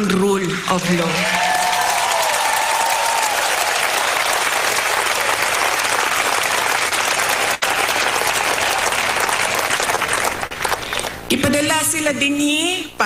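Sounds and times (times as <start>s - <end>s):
large crowd applauding: 0.5s - 11.2s.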